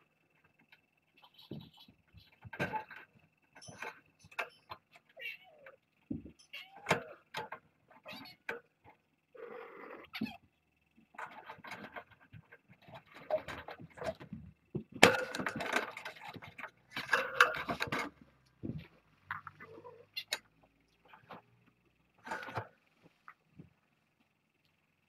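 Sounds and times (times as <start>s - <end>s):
rustling scraping and knocks: 11.1s - 19.9s, 22.2s - 23.7s.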